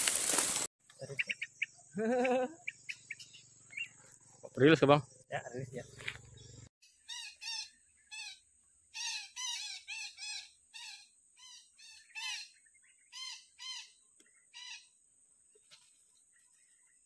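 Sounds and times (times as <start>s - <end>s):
parakeets calling: 1.0s - 4.2s, 9.0s - 14.9s.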